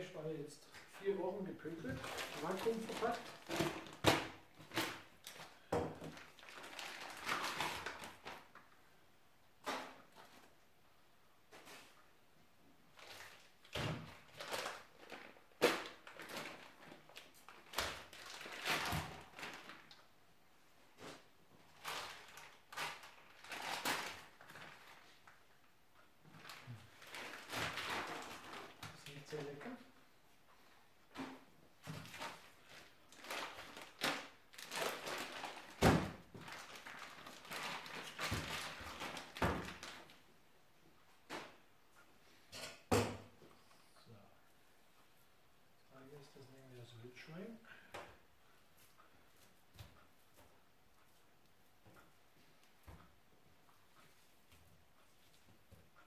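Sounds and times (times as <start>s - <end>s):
plastic crinkling: 1.8s - 8.8s, 12.9s - 20.1s, 21.6s - 25.4s, 26.3s - 29.6s, 31.2s - 40.2s.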